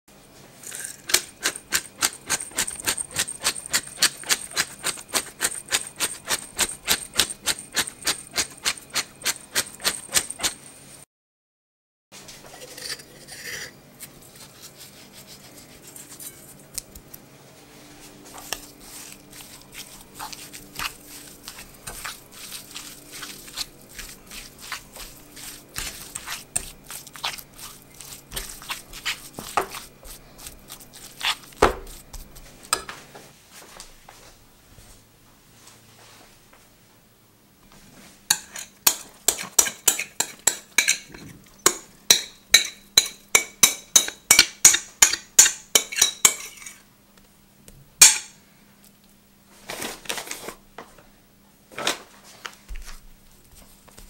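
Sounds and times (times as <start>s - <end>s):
spoon stirring in a bowl: 0.6s - 10.7s, 18.2s - 33.0s, 38.3s - 46.8s
pepper mill grinding clicks: 0.7s - 10.5s.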